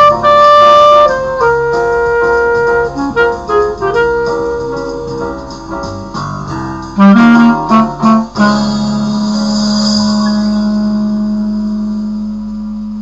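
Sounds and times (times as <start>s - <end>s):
clarinet melody: 0.0s - 13.0s
chordal accompaniment: 7.0s - 12.0s.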